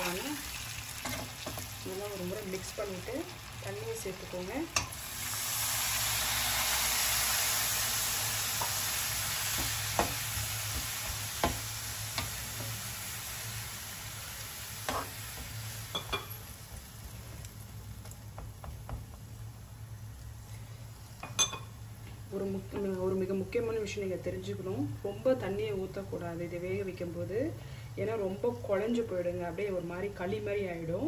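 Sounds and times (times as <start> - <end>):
loud sizzle of water in oil: 0.0 - 22.0.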